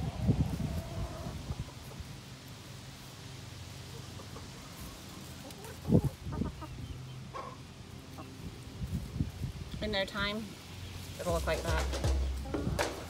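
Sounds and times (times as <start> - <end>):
hens clucking: 0.0 - 2.5, 3.7 - 8.8, 10.4 - 13.0.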